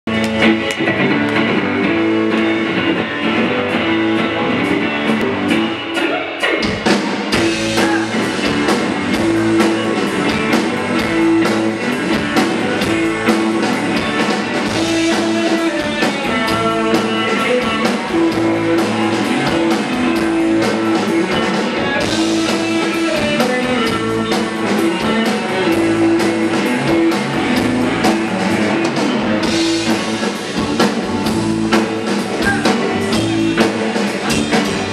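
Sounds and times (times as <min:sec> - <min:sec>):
electric guitar: 0:00.0 - 0:34.9
drum kit: 0:00.1 - 0:34.9.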